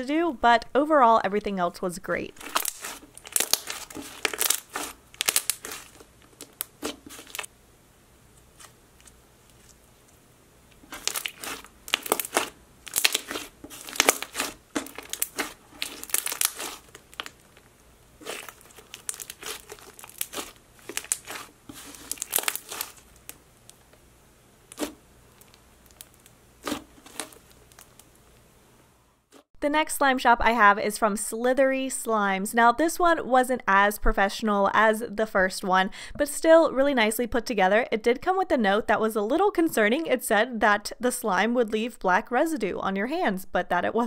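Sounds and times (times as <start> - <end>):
slime squished by hand: 2.4 - 7.5, 10.8 - 23.8, 24.7 - 28.1.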